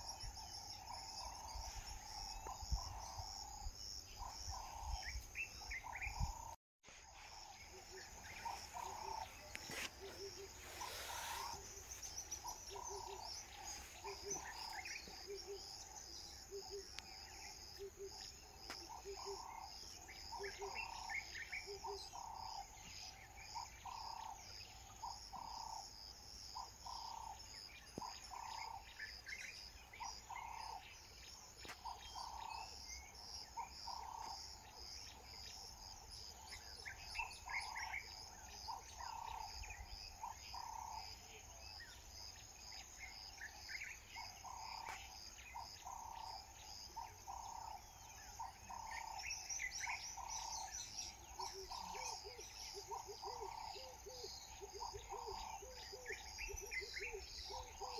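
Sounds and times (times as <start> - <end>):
high insect trill: 0.0 - 21.2
bird chirps: 26.6 - 57.9.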